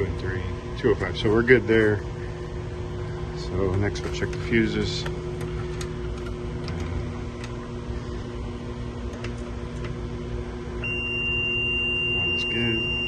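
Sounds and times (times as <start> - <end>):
machinery hum: 0.0 - 13.0
meter continuity beep: 10.8 - 13.0.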